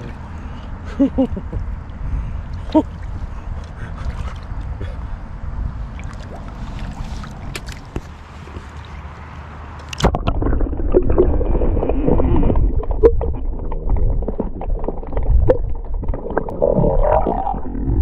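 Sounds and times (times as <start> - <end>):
splash: 5.9 - 9.1, 9.9 - 16.6
muffled underwater current gurgling: 10.0 - 18.0.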